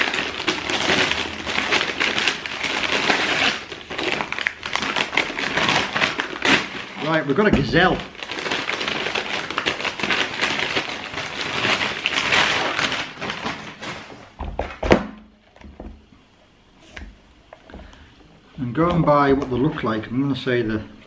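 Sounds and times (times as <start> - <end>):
paper rustling and crinkling: 0.0 - 15.7.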